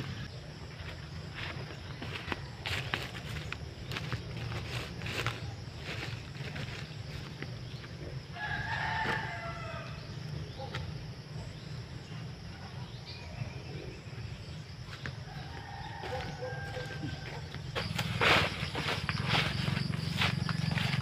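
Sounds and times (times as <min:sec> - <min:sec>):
rooster crowing: 0:08.3 - 0:10.2, 0:15.2 - 0:21.0.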